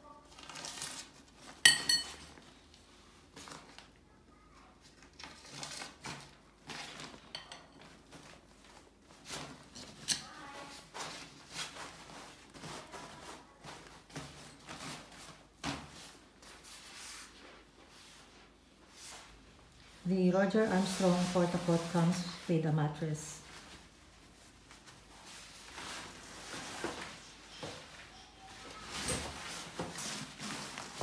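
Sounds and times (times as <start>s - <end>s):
fabric rustling: 23.4s - 31.0s.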